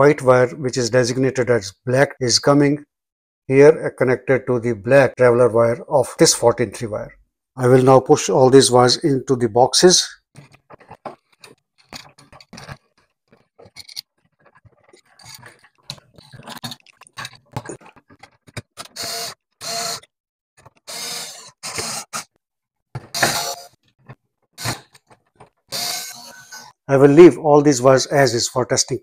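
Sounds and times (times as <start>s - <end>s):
cordless screwdriver whirring: 20.9s - 22.1s, 25.7s - 26.7s.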